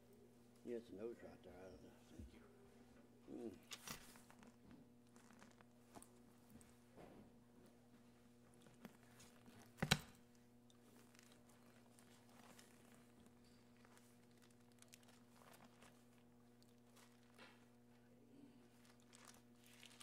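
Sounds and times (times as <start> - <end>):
page rustling: 3.6 - 6.1, 10.8 - 17.9, 18.7 - 20.0.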